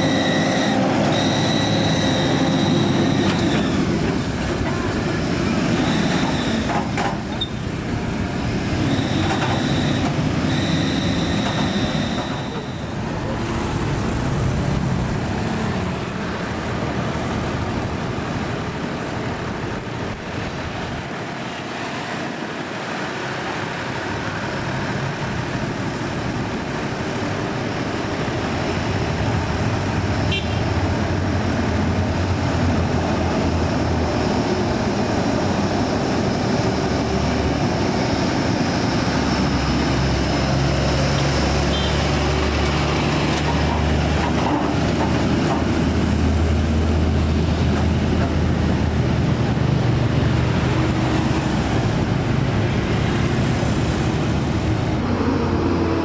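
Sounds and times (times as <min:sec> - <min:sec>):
short high beeps: 0:00.0 - 0:03.8, 0:05.8 - 0:06.7, 0:08.9 - 0:13.0
passing motorbikes and cars: 0:00.0 - 0:56.0
truck diesel engine drone: 0:00.0 - 0:56.0.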